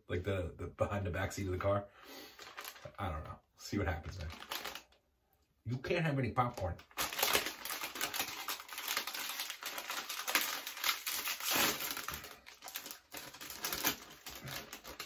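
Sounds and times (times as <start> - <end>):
plastic snack bag crinkling: 2.3 - 3.0, 4.0 - 5.0, 6.5 - 15.0.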